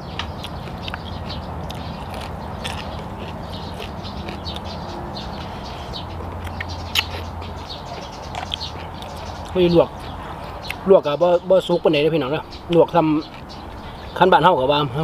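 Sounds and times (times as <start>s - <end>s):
person sucking and chewing shellfish: 0.4s - 9.6s.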